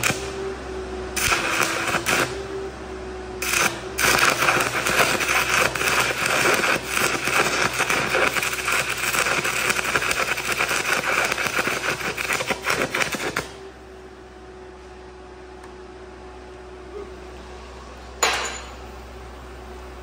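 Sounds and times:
welding arc crackling: 0.0s - 0.4s, 1.2s - 2.5s, 3.4s - 13.6s.

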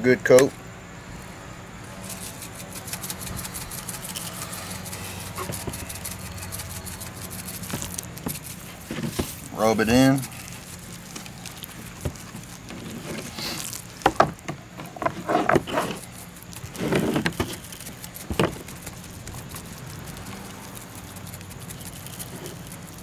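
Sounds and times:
seasoning pattering onto meat: 1.9s - 14.5s, 16.0s - 23.0s
dry rub rattling in shaker: 1.9s - 14.8s, 15.6s - 23.0s.

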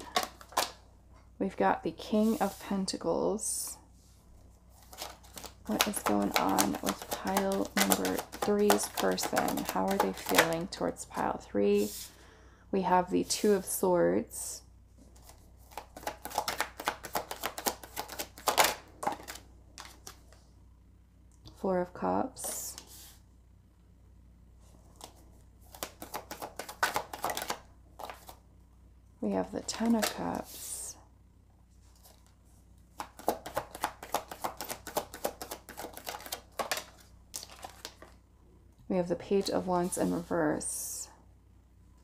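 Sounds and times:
cards being shuffled: 0.0s - 0.8s, 4.7s - 10.9s, 15.1s - 20.4s, 24.9s - 28.4s, 29.6s - 30.7s, 31.9s - 38.2s.

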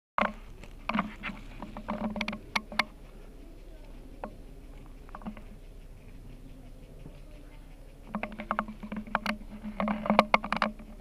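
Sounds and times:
light clicks and knocks: 0.2s - 3.0s, 8.0s - 11.0s.

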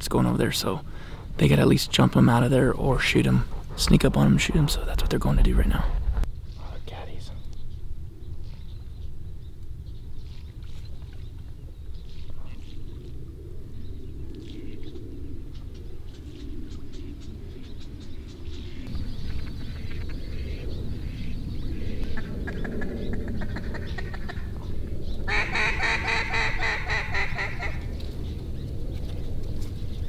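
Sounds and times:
low rumble: 0.0s - 10.3s
ducks quacking: 25.3s - 27.9s.

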